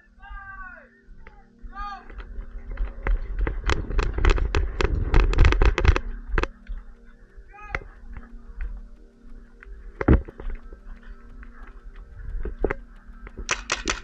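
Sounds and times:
paintball guns firing: 0:13.4 - 0:14.0.

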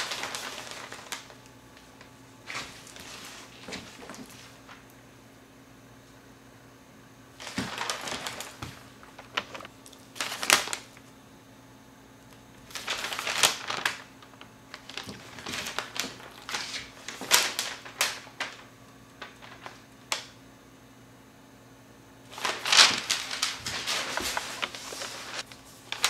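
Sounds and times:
paper rustling and crackling: 0:00.0 - 0:05.0, 0:07.4 - 0:11.1, 0:12.6 - 0:20.4, 0:22.3 - 0:26.0.

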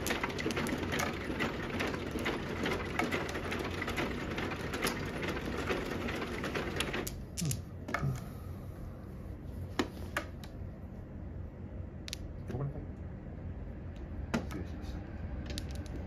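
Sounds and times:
steady background noise: 0:00.0 - 0:16.0
plastic tiles clicking on felt: 0:15.4 - 0:16.0.

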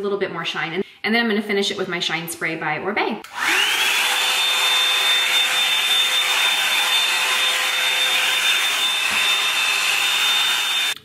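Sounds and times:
blow dryer running: 0:03.2 - 0:11.0
high-pitched motor whine: 0:03.5 - 0:11.0.

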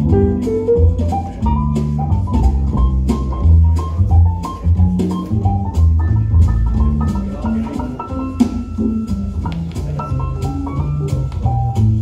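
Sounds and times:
bass line: 0:00.0 - 0:12.0
drum and cymbal beat: 0:00.0 - 0:12.0
music over loudspeakers: 0:03.4 - 0:12.0.

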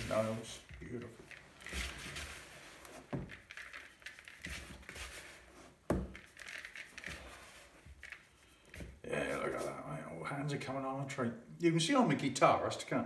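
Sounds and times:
hands rubbing flour in bowl: 0:00.0 - 0:08.3.

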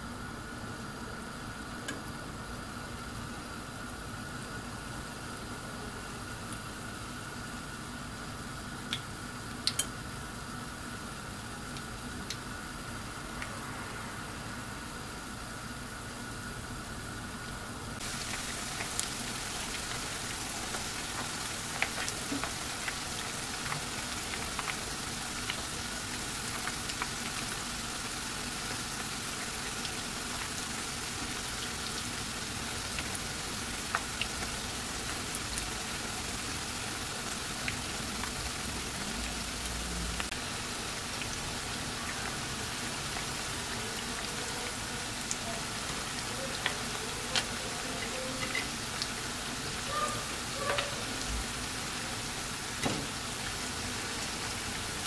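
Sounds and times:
frying in hot oil sizzling: 0:00.0 - 0:55.0
oil popping and crackling: 0:18.0 - 0:49.9.

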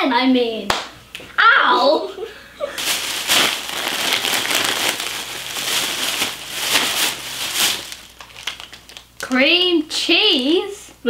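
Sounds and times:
plastic bag crinkling: 0:02.8 - 0:09.4.

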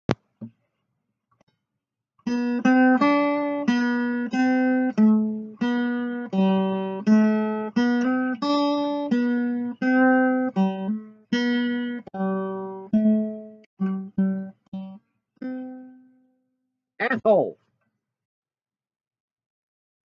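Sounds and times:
slow plucked melody: 0:02.3 - 0:16.2.

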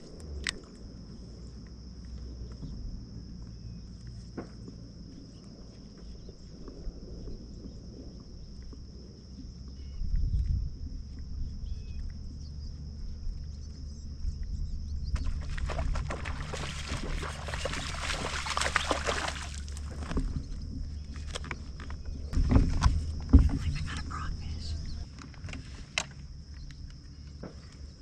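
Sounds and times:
low rumble: 0:00.0 - 0:25.6
faint chirps: 0:23.3 - 0:25.2.

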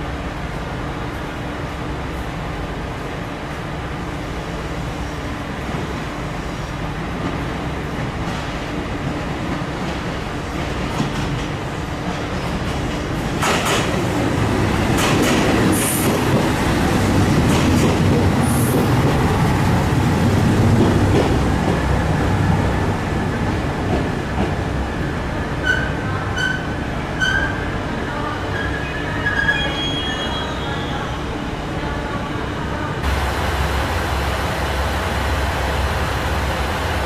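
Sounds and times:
rail-joint clicks: 0:10.6 - 0:14.1, 0:14.9 - 0:16.5, 0:17.4 - 0:19.0
high wheel squeals: 0:28.6 - 0:31.1
diesel train engine rumble: 0:31.1 - 0:37.0.

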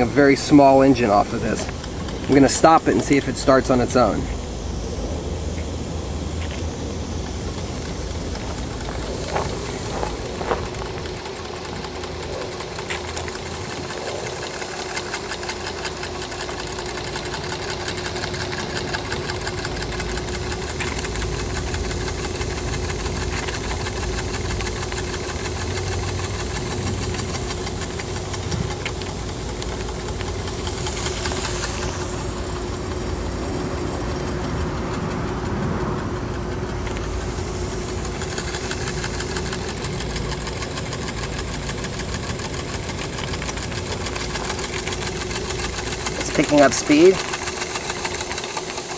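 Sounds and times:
steam engine ticking: 0:00.0 - 0:48.9
steam hissing: 0:00.0 - 0:48.9.

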